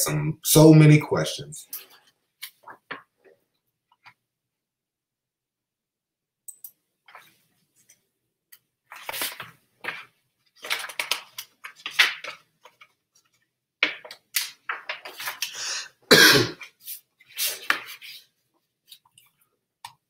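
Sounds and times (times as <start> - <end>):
man coughing: 16.1 - 16.6.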